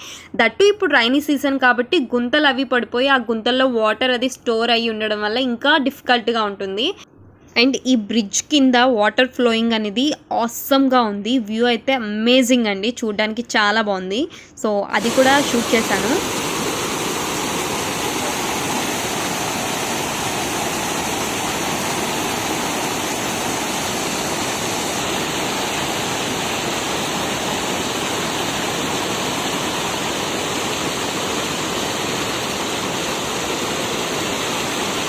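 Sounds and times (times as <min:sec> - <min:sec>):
river water rushing: 0:15.0 - 0:35.0.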